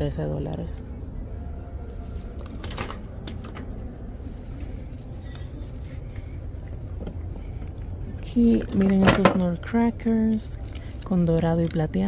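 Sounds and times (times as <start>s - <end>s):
low background hum: 0.0s - 12.0s
high jingle: 4.8s - 7.0s.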